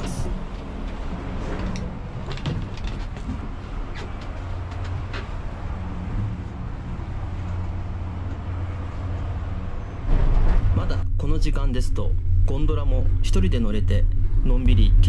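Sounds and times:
gondola lift machinery humming: 0.0 - 15.0.

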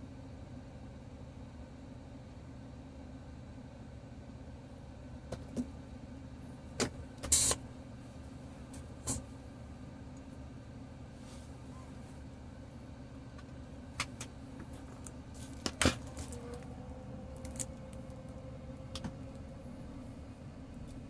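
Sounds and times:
truck engine idling: 5.7 - 21.0.

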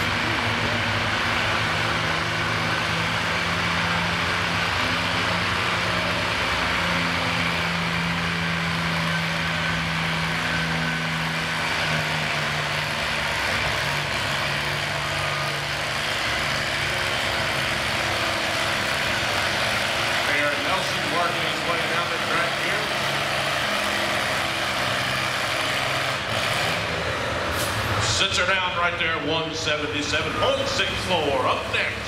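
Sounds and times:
tractor engine running under load: 0.0 - 32.0.

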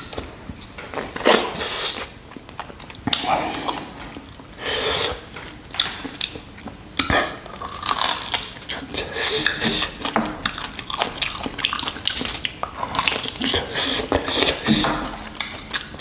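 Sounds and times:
wet crackly chewing: 5.8 - 16.0.

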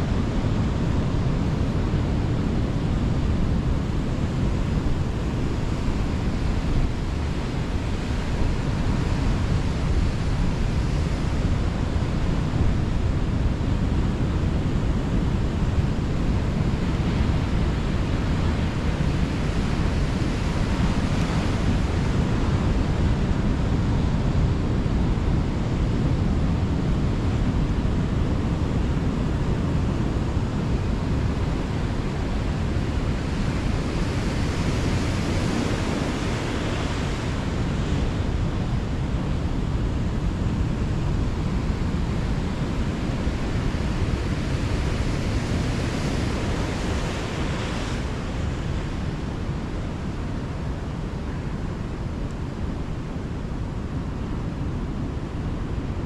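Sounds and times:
wind rumbling on microphone: 0.0 - 56.0
ocean surf breaking: 32.4 - 51.3.

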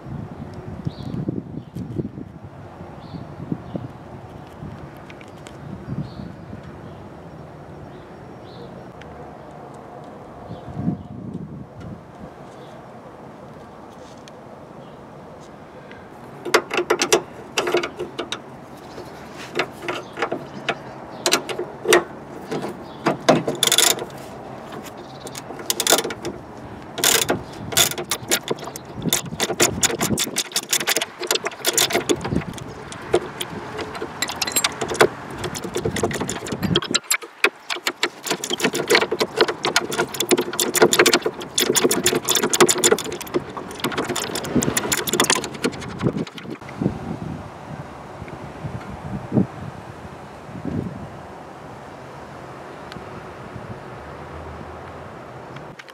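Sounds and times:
ratchet wrench clicking: 23.2 - 24.2, 24.8 - 26.4, 27.0 - 46.6.

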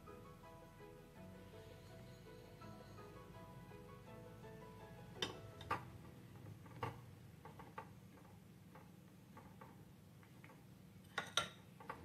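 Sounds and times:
metal spoons clinking on pot: 11.1 - 11.6.

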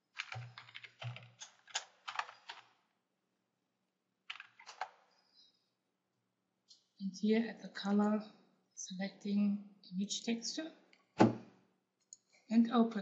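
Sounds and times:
typing on computer keyboard: 0.0 - 2.8, 4.3 - 5.0.

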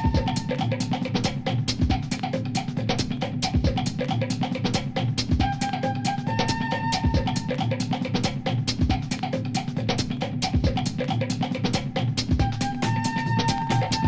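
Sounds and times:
bass drum thumps: 0.0 - 0.4
drum kit beat: 0.0 - 14.0.

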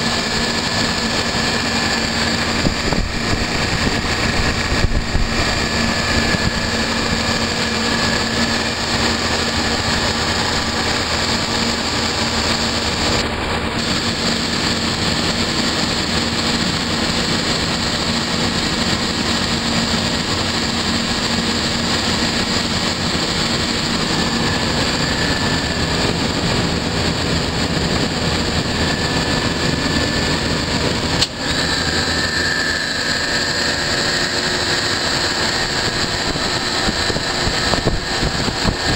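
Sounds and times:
compressor hum: 0.0 - 38.9
fan rush: 0.0 - 38.9.

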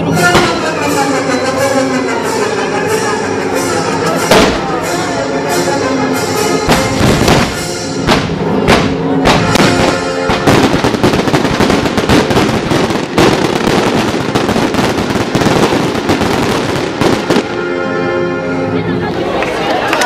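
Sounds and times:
fireworks bangs and crackling: 0.0 - 3.0, 4.0 - 5.1, 6.6 - 17.8
music: 0.0 - 20.0.

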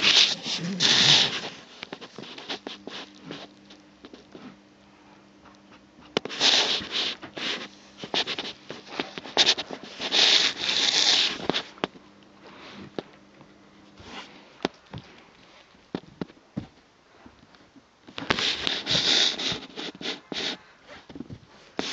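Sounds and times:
fabric rustling and scraping: 0.0 - 3.6, 6.2 - 11.8
faint steady hum: 0.0 - 21.9.

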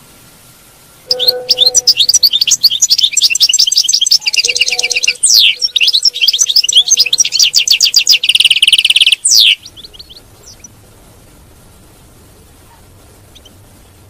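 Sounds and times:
goldfinch singing: 1.1 - 10.7.

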